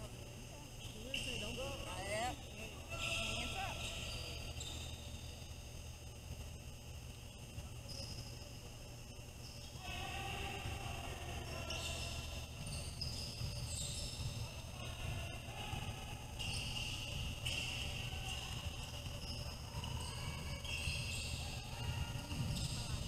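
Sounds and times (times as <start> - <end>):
shoe squeaks: 0.8 - 2.3, 2.9 - 5.6, 7.8 - 8.5, 11.5 - 14.6, 16.4 - 23.0
basketball bouncing on court: 16.3 - 23.0.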